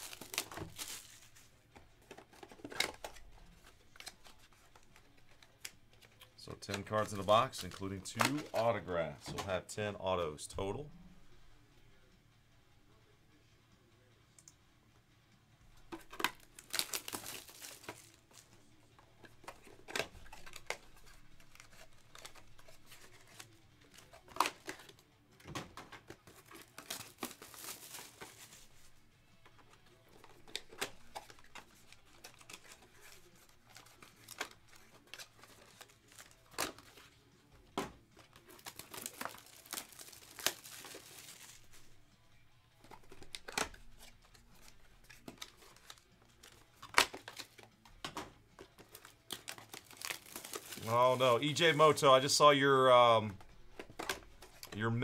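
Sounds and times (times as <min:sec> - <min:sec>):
plastic shrink wrap tearing: 0:00.0 - 0:01.4, 0:16.0 - 0:18.4, 0:26.3 - 0:28.7, 0:38.3 - 0:41.8, 0:48.8 - 0:52.2.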